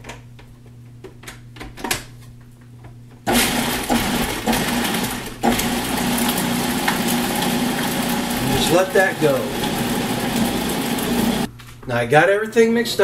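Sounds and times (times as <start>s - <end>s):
food processor motor chopping: 3.3s - 11.5s.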